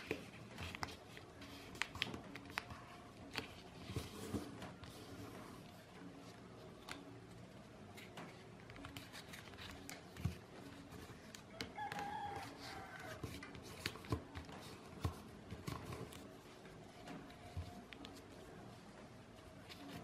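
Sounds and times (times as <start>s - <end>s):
paper rustling and crackling: 7.8s - 20.0s
rooster crowing: 11.5s - 13.3s.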